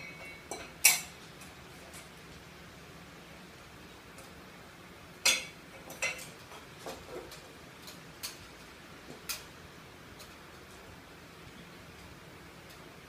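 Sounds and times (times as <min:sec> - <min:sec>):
metal tools clinking on fan housing: 0:00.0 - 0:01.2, 0:05.2 - 0:06.6.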